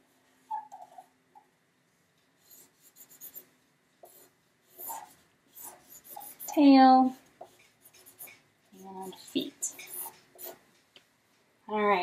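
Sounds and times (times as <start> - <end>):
marker scratching on paper: 2.4 - 10.6.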